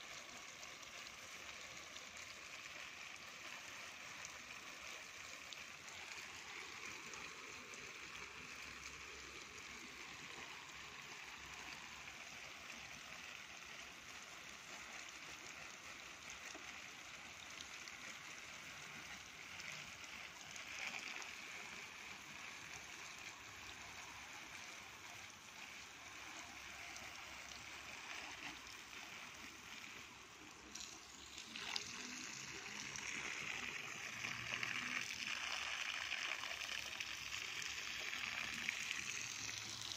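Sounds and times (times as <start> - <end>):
water stream hitting ground: 0.0 - 39.9.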